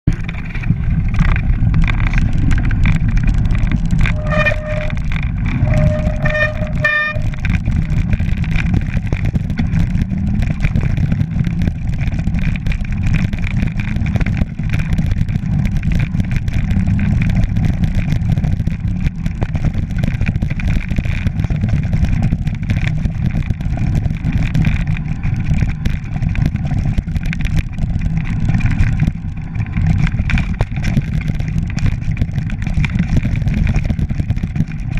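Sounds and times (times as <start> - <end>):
wind rumble on microphone: 0.0 - 34.9
bike rattling over stones: 0.1 - 34.9
short squeals: 4.0 - 7.4.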